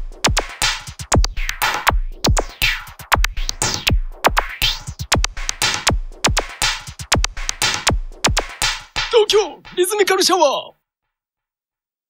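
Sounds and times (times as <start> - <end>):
punchy kick drums: 0.0 - 10.1
electronic music: 9.0 - 10.7.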